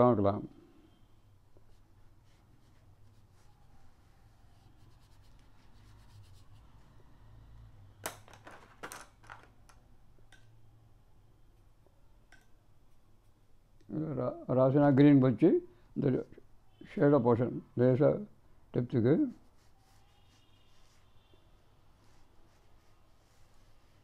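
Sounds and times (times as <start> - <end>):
paintbrush scratching on paper: 1.7 - 6.9, 19.2 - 24.0.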